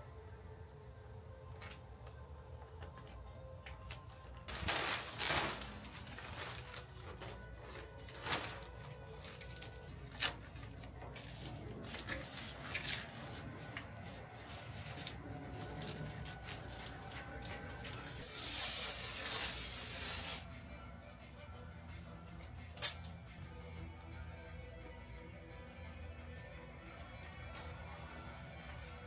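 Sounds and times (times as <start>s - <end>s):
quiet background music: 0.0s - 29.0s
spray hissing: 18.2s - 20.5s.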